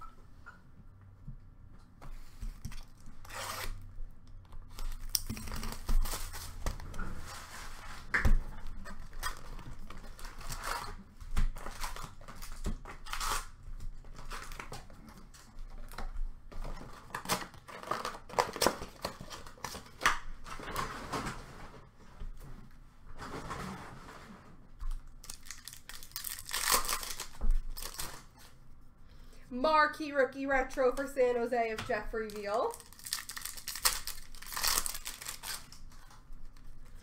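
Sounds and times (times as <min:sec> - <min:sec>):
cardboard tearing: 0:03.2 - 0:03.8, 0:04.7 - 0:06.6, 0:11.6 - 0:13.6, 0:25.2 - 0:28.3, 0:32.8 - 0:36.1
foil packs crinkling: 0:17.0 - 0:21.0, 0:25.2 - 0:28.4, 0:32.3 - 0:37.0.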